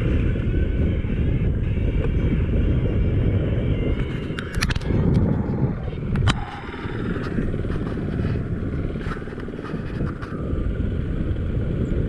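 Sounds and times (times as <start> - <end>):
motorcycle engine rumbling: 0.0 - 12.0.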